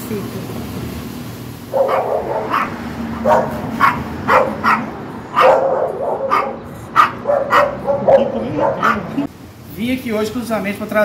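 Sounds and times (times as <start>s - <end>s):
small dog yapping: 1.7s - 9.2s.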